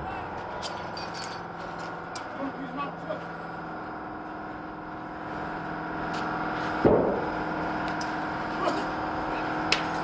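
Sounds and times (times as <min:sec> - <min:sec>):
engine running: 0:00.0 - 0:10.0
fire burning: 0:00.0 - 0:10.0
loud dull bang: 0:06.8 - 0:07.3.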